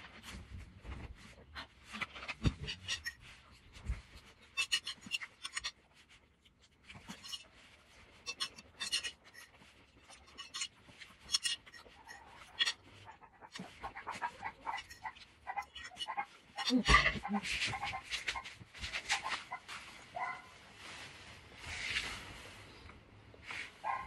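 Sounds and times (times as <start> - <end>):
fork and plate clicks and scrapes: 2.2 - 3.2, 4.4 - 5.8, 8.2 - 18.0.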